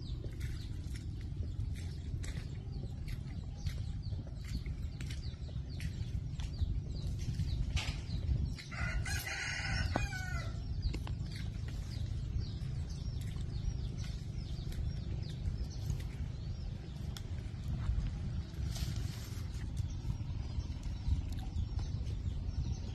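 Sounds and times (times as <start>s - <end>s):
wind rumble on microphone: 0.0s - 22.9s
rooster crowing: 8.7s - 10.6s.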